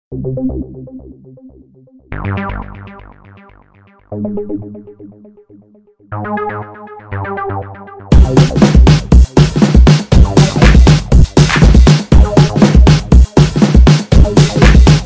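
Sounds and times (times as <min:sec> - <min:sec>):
background music with beat: 0:00.2 - 0:15.0.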